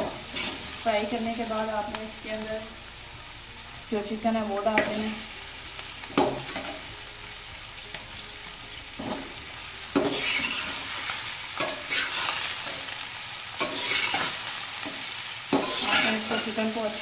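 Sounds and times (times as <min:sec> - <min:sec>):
metal spoon scraping a pan: 0:00.0 - 0:00.8, 0:09.0 - 0:13.0, 0:13.6 - 0:17.0
meat sizzling in a pan: 0:00.0 - 0:17.0.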